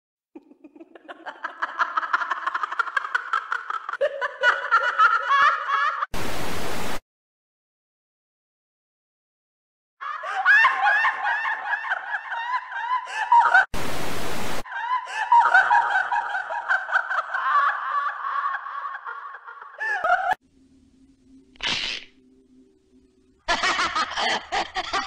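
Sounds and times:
static hiss: 6.2 - 7.0, 13.8 - 14.6.

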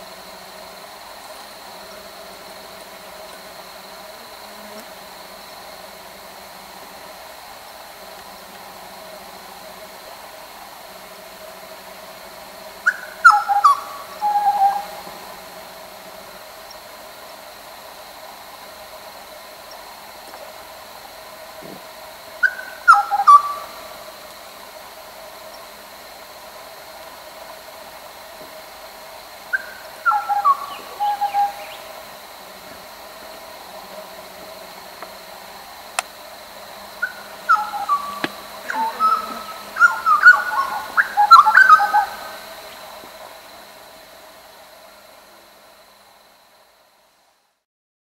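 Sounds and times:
birds whistling descending notes: 12.9 - 14.9, 22.4 - 23.8, 29.5 - 32.0, 37.0 - 42.8
faint steady high tone: 37.0 - 42.9.

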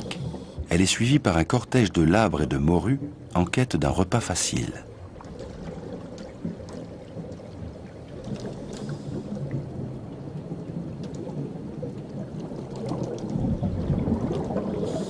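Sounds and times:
underwater rumbling wash: 0.0 - 15.0
faint clicks: 8.1 - 9.7, 11.0 - 13.4.

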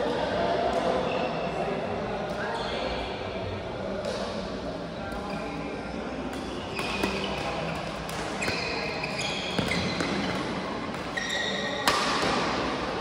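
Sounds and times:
shoes squeaking on floor: 6.7 - 12.0
racket hitting shuttlecock: 9.5 - 12.8.

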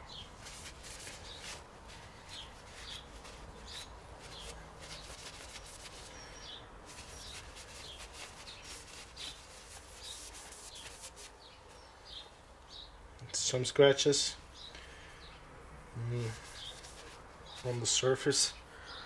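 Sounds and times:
cloth wiping metal: 0.4 - 6.2, 6.9 - 11.4, 16.2 - 18.0.

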